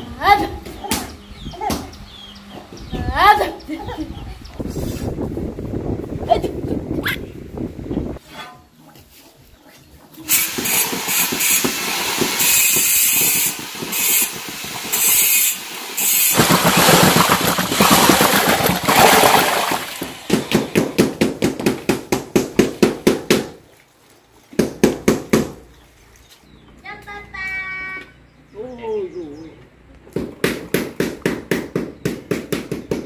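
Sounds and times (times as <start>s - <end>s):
electric mixer churning mortar: 10.3s - 20.8s.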